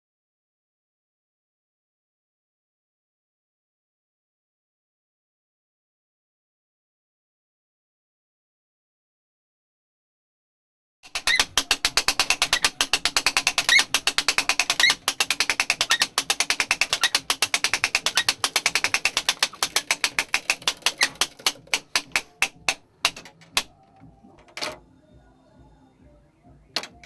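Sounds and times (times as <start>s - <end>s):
rattling mechanism clicks: 11.1s - 23.7s.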